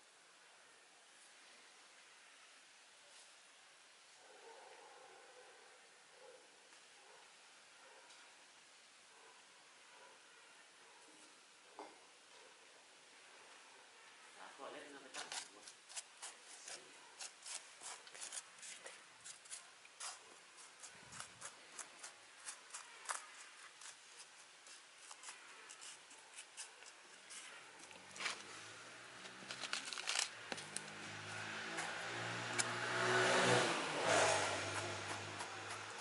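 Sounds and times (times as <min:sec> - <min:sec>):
passing vehicle engine hum: 0:30.6 - 0:36.0.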